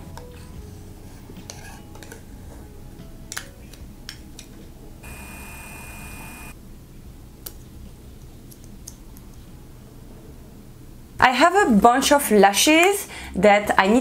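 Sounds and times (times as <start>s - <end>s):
low hum: 5.0s - 6.6s.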